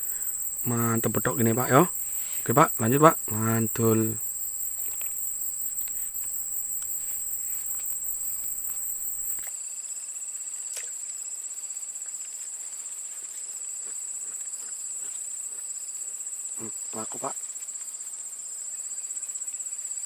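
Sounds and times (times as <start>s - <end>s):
insect chorus trilling: 0.0s - 20.0s
faint clicks: 3.8s - 9.5s.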